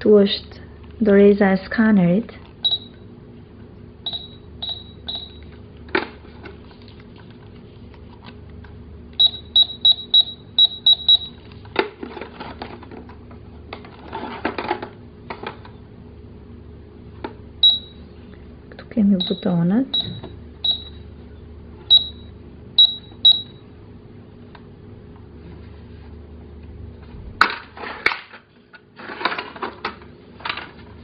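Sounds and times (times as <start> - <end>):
toy cash register beeping: 2.6 - 3.0, 4.1 - 5.5, 9.2 - 11.4, 17.6 - 18.0, 19.2 - 21.0, 21.9 - 23.5
plastic clattering: 29.0 - 30.9.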